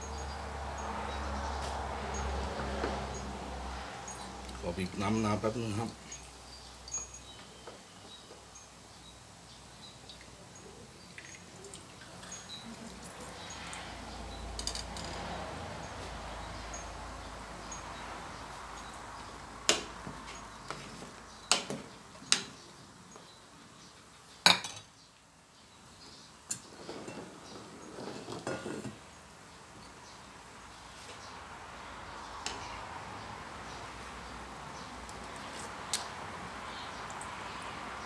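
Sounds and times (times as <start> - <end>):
kitchenware clinking: 28.1 - 29.0.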